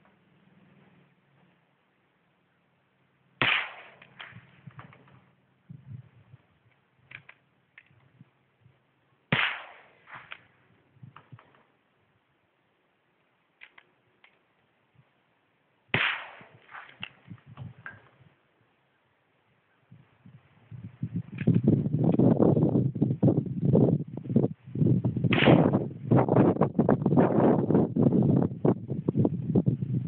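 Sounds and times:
rifle gunshots with echo: 0:03.4 - 0:05.0, 0:09.3 - 0:10.5, 0:15.9 - 0:17.2, 0:25.3 - 0:25.9
rifle handling clicks and knocks: 0:06.7 - 0:08.1, 0:13.6 - 0:14.7.

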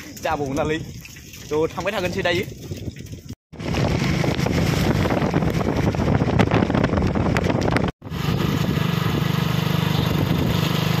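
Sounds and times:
wind rushing over microphone: 0:02.2 - 0:11.0
motorcycle engine running: 0:03.6 - 0:11.0.

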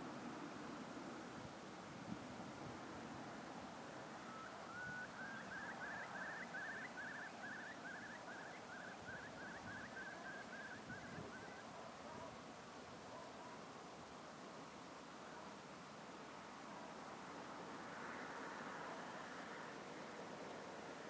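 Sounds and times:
wind hiss: 0:00.0 - 0:11.8
bird calling repeated notes: 0:04.3 - 0:11.6.

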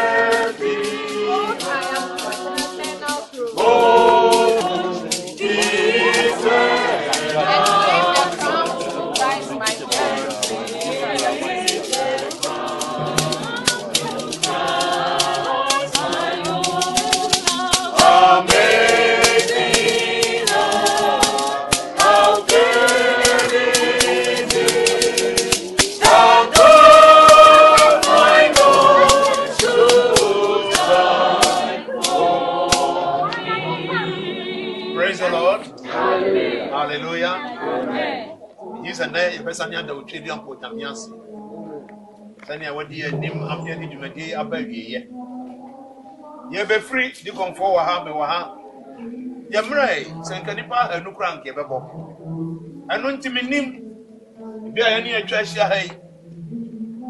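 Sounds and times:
gourd shaker rattling: 0:00.0 - 0:33.1
percussive beat: 0:00.0 - 0:36.6
congregation singing a hymn: 0:00.0 - 0:57.0.

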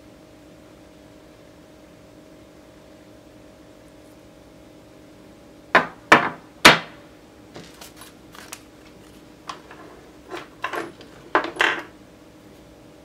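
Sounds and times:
battery cells knocking on wooden bench: 0:05.8 - 0:06.8, 0:09.5 - 0:11.9.

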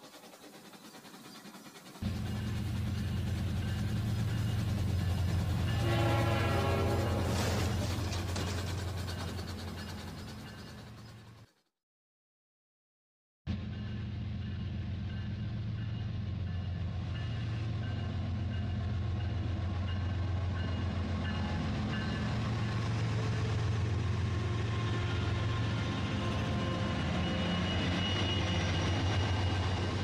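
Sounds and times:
toy train running on track: 0:00.0 - 0:11.6.

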